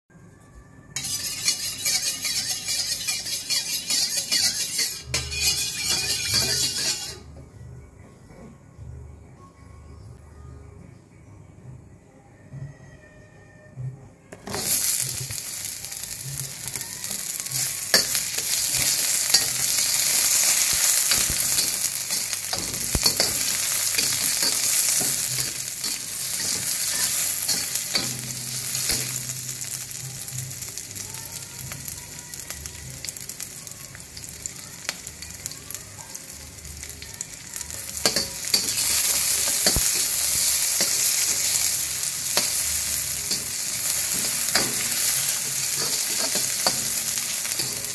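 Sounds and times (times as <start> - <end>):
vegetables sizzling in hot oil: 1.0 - 7.3, 14.4 - 47.9
metal spatula scraping wok: 1.0 - 7.4, 16.7 - 30.0, 37.8 - 47.9.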